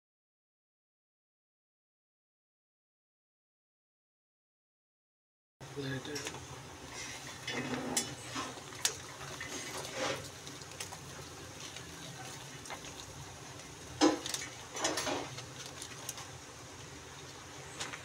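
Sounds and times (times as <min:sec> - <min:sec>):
paper and foil packet crackling: 0:08.1 - 0:16.4.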